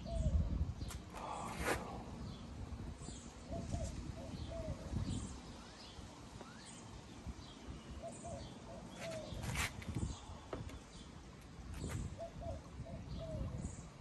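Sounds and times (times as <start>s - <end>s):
dove cooing: 12.1s - 13.6s.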